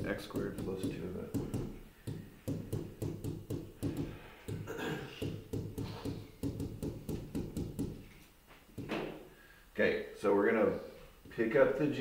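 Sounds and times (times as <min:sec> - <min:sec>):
pen tapping on whiteboard screen: 0:00.3 - 0:08.1.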